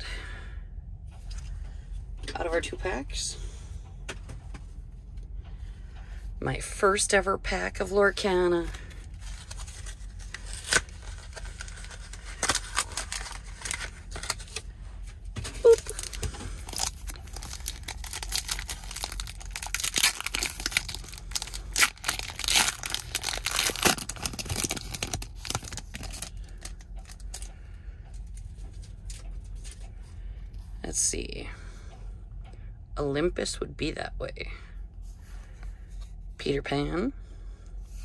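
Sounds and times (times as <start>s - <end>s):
foil wrapper tearing and crinkling: 9.0s - 14.6s, 15.6s - 27.3s.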